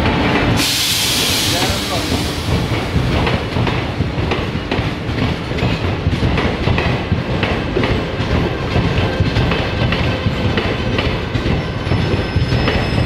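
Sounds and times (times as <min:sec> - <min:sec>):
train rumble: 0:00.0 - 0:13.0
train wheels clattering over rail joints: 0:00.0 - 0:13.0.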